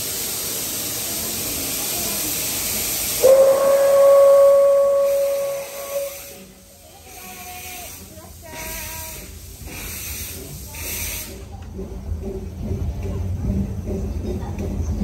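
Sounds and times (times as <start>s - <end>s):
steam locomotive hissing: 0.0s - 15.0s
steam whistle: 3.2s - 6.6s.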